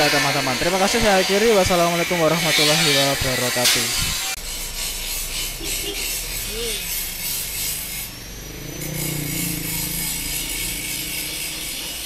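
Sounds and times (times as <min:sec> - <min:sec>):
high rasping hiss: 0:00.0 - 0:12.0
truck engine pulling away: 0:04.4 - 0:12.0.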